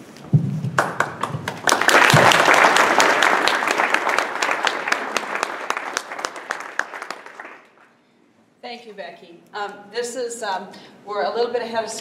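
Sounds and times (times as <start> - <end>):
audience applauding: 0.8 - 7.9.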